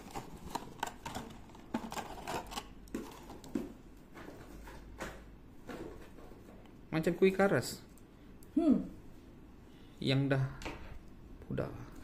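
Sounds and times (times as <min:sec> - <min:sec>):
plastic packaging crackling: 0:00.0 - 0:03.5.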